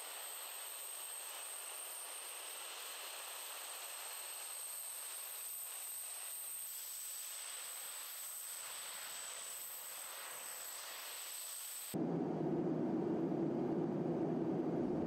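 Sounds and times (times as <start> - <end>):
jet engines idling whine: 11.9 - 15.0
deep engine rumble: 12.0 - 15.0.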